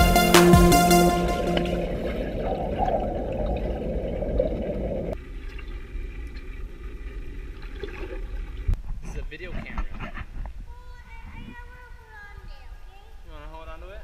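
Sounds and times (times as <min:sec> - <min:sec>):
muffled underwater water noise: 0:01.9 - 0:09.1.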